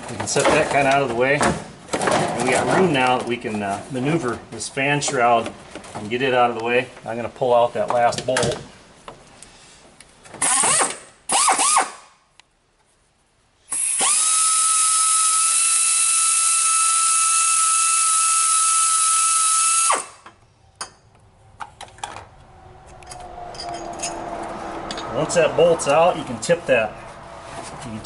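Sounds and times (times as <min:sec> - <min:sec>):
power ratchet whining: 0:10.4 - 0:12.0, 0:13.7 - 0:20.2.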